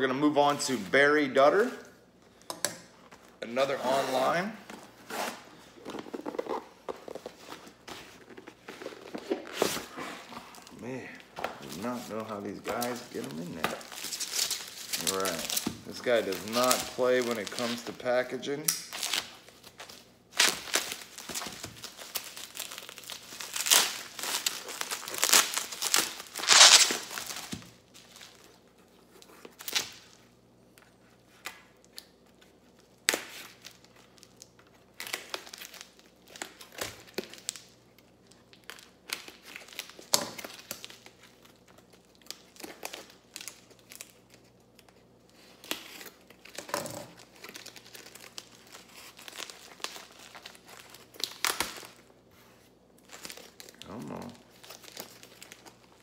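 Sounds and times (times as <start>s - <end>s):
plastic packaging crinkling: 5.7s - 30.2s, 31.8s - 52.1s, 52.9s - 56.0s
tape being torn: 23.4s - 27.6s.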